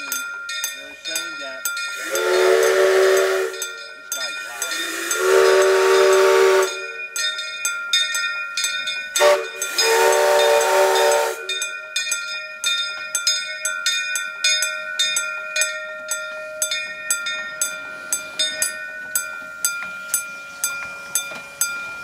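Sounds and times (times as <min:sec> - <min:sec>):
crossing bell ringing: 0:00.0 - 0:22.0
steam locomotive whistle: 0:01.9 - 0:03.8, 0:04.6 - 0:07.0, 0:09.2 - 0:11.6.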